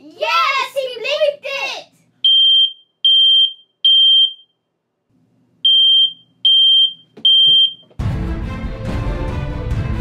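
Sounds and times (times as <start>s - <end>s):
smoke alarm beeping: 2.2s - 4.6s, 5.6s - 7.9s
loud music: 8.0s - 10.0s.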